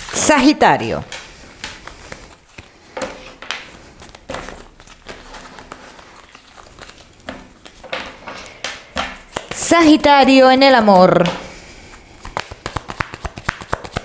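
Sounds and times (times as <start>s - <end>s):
cards being shuffled: 1.0s - 14.0s.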